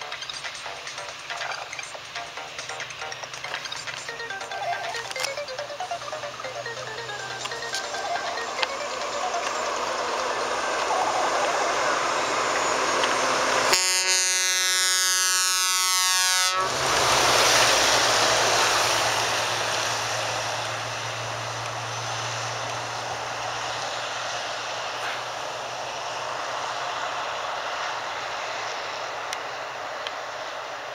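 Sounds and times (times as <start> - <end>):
truck engine passing: 0.0 - 30.9
truck air horn blast: 12.0 - 17.2.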